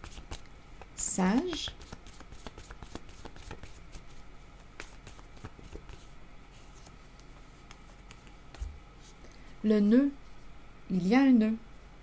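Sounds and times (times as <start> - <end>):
cards being shuffled: 0.0 - 8.7.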